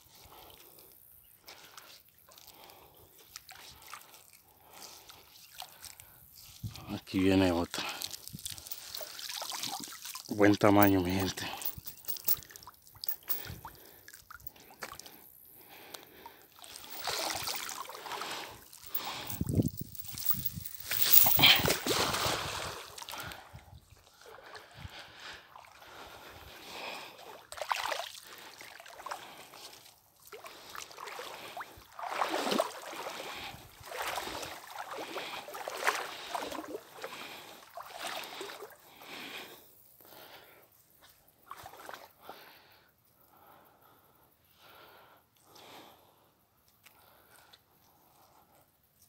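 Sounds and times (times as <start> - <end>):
water splashing and sloshing: 7.7 - 39.2, 41.4 - 42.4.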